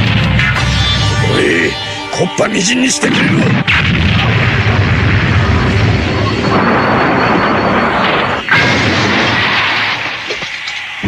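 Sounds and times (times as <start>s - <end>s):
sharp blast: 3.0s - 10.4s
weapon firing and exploding: 3.4s - 10.7s.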